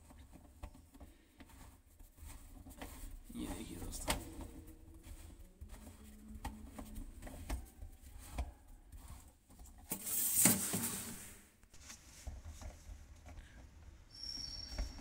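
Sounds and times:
plastic fittings clicking and rubbing: 0.0 - 10.2
scraping rustle: 0.0 - 13.4.

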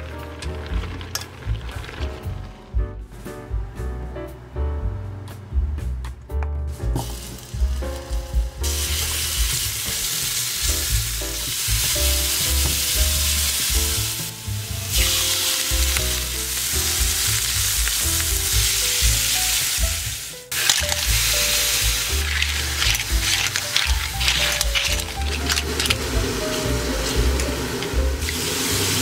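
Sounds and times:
soft background music: 0.0 - 29.0
garlic sizzling in oil: 7.0 - 29.0.

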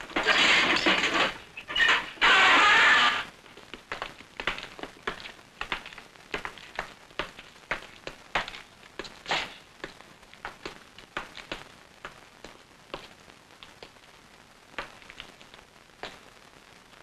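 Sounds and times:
footsteps on hard floor: 2.6 - 14.0, 14.8 - 16.3.

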